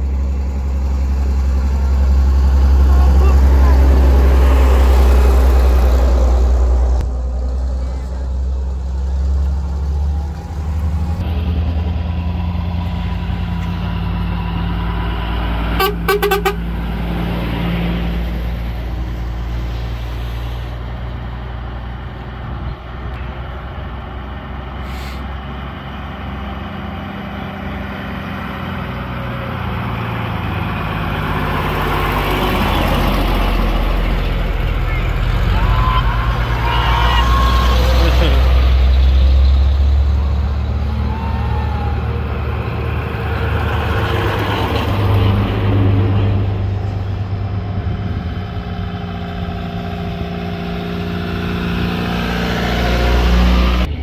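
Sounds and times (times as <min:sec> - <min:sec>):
old vehicle engines passing: 0:00.0 - 0:54.0
horn toot pulses: 0:15.8 - 0:16.6.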